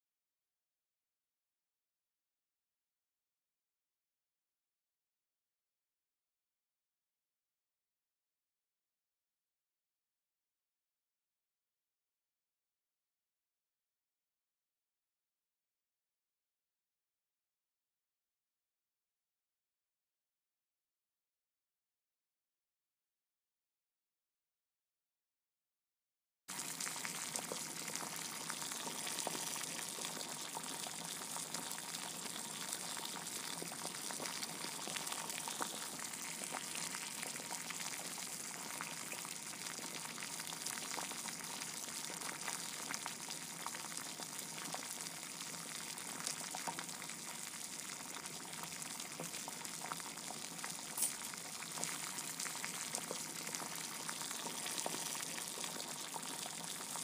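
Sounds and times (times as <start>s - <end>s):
crackling hiss with faint pops: 26.5s - 57.0s.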